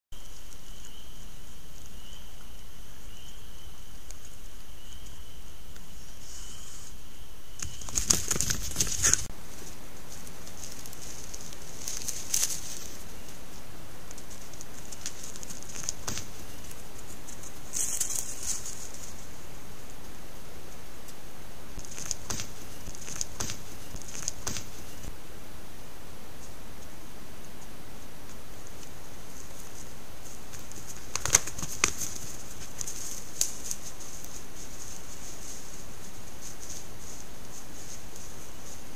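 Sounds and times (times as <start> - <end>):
faint high chirp: 0.2 - 8.1
microphone hiss: 0.2 - 38.9
rustling and crackling in dry leaves: 7.6 - 21.2, 21.8 - 25.2, 28.3 - 38.9.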